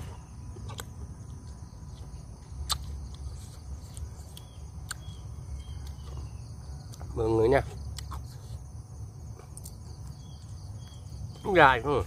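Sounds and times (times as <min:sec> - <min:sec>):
person chewing: 0:00.1 - 0:06.2, 0:07.8 - 0:08.6
mouth clicks: 0:02.6 - 0:03.2.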